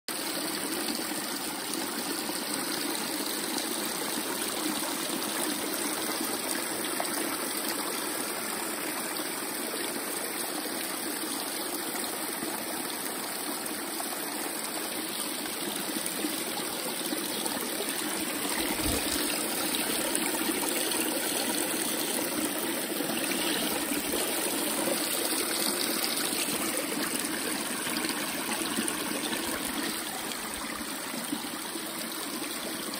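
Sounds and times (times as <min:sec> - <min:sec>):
brook trickling over stones: 0:00.1 - 0:32.9
water spilling from trough: 0:15.4 - 0:32.9.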